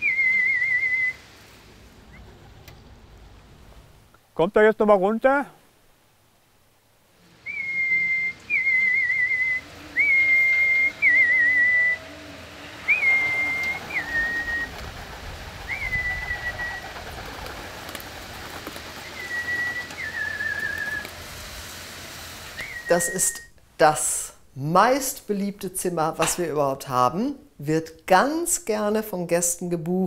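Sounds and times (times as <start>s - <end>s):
person whistling a call: 0.0s - 1.2s, 7.4s - 12.1s, 12.8s - 14.7s, 19.0s - 21.1s, 22.6s - 23.5s.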